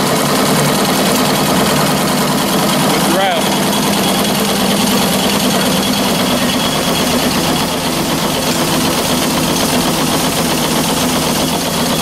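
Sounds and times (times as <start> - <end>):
steam engine rattling: 0.0 - 12.0.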